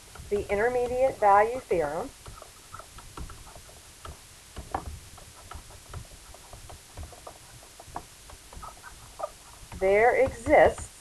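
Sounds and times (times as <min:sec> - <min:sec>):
stylus tapping and scratching screen: 0:00.0 - 0:11.0
pen squeaks: 0:02.2 - 0:03.8, 0:04.8 - 0:09.8.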